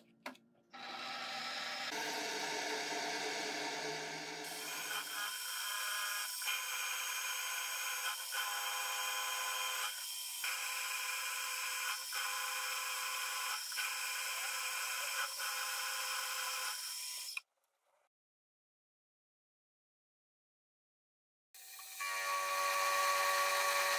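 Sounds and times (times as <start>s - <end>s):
milling machine spindle whine: 0.8s - 7.9s, 21.8s - 23.9s
cutter scraping metal: 0.8s - 17.4s, 21.6s - 23.9s.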